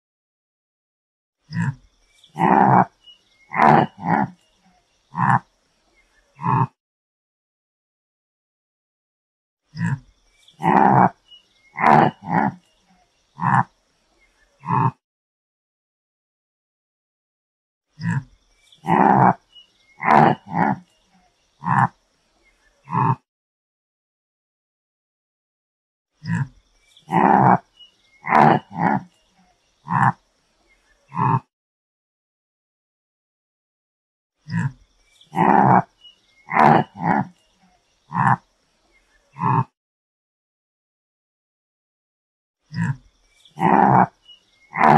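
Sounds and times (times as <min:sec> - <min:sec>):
antelope calling: 0:02.3 - 0:04.4, 0:05.1 - 0:05.4, 0:10.6 - 0:12.6, 0:13.4 - 0:13.7, 0:18.8 - 0:19.4, 0:20.0 - 0:20.8, 0:21.6 - 0:21.9, 0:27.1 - 0:29.1, 0:29.8 - 0:30.2, 0:31.1 - 0:31.4, 0:34.5 - 0:34.7, 0:35.3 - 0:37.3, 0:38.1 - 0:38.4, 0:39.3 - 0:39.7, 0:43.6 - 0:44.9.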